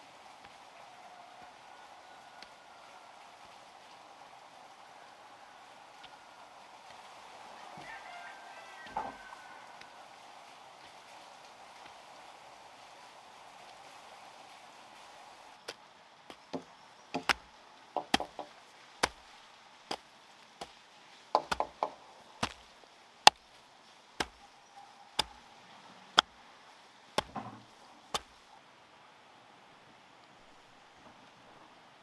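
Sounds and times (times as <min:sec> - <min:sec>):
chopping strikes on wood: 0:16.5 - 0:19.2, 0:21.4 - 0:22.7, 0:24.2 - 0:24.4, 0:27.2 - 0:28.4.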